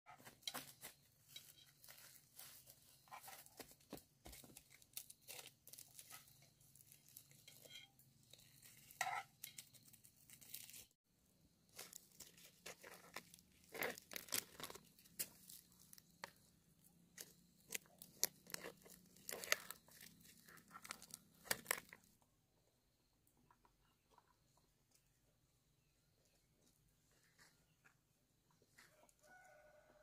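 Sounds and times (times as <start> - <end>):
husk sheaths tearing and crackling: 11.8 - 16.0, 17.7 - 22.0.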